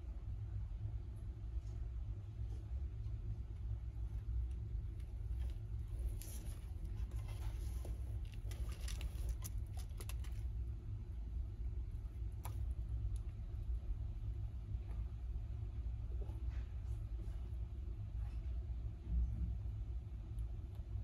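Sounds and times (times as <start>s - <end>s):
low steady hum: 0.0s - 21.0s
crackles of shell and chewing: 4.5s - 10.6s.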